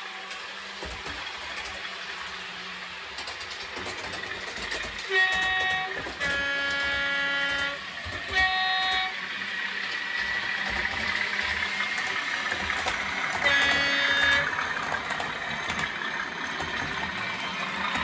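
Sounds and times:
model train running hum: 0.0s - 18.0s
model train two-tone horn: 5.0s - 9.4s, 12.4s - 14.8s.

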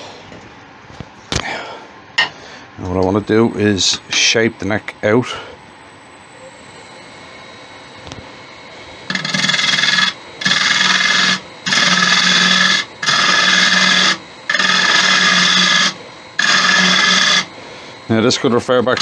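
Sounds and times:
lathe gouge rasping on wood: 9.1s - 19.0s.

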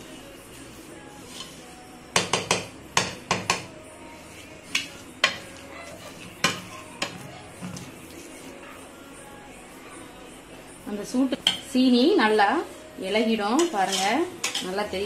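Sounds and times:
spoon clinking against metal pot: 13.6s - 14.8s.

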